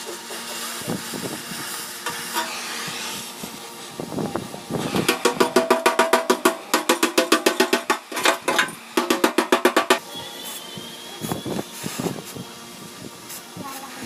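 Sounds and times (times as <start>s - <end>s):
hammer tapping sheet steel: 5.1s - 10.0s.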